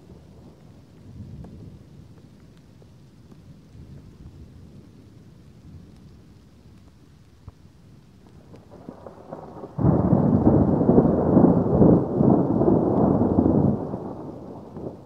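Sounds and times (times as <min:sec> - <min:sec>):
thunder rolling: 0:08.6 - 0:15.0.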